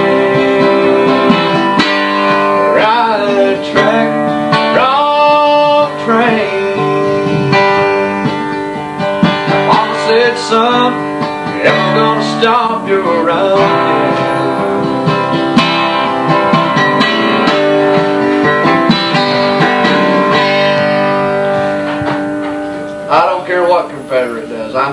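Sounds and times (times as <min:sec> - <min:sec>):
man singing: 0:00.0 - 0:08.3, 0:09.4 - 0:15.2
acoustic guitar strummed: 0:00.0 - 0:24.9.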